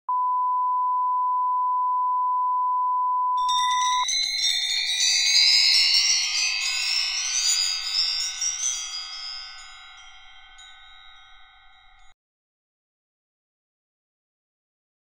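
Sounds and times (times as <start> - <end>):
test tone beep: 0.1 - 4.0
shimmering rising chime: 3.4 - 12.2.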